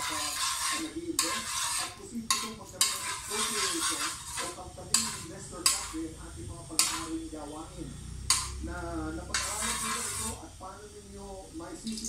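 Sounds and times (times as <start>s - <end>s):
spoon clinking against pan: 0.0s - 6.0s, 6.8s - 7.1s
metal spoon scraping in wok: 0.0s - 6.1s, 6.7s - 7.4s, 9.3s - 10.4s
oil sizzling: 0.0s - 12.0s.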